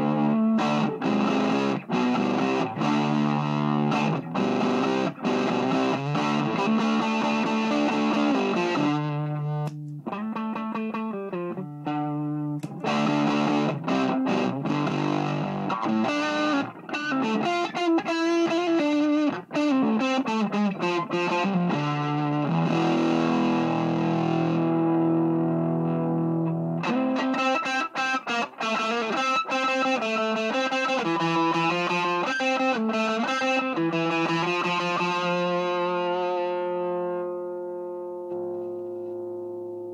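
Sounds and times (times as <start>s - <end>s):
distorted electric guitar: 0.0s - 39.9s.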